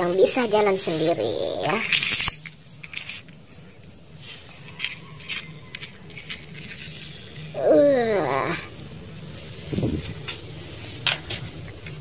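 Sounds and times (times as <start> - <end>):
toy car clicking on stone: 1.6 - 3.4, 4.6 - 7.5.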